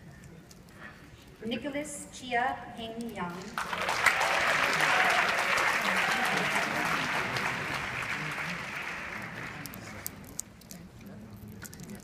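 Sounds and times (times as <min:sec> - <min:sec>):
audience applauding: 0:03.5 - 0:10.2.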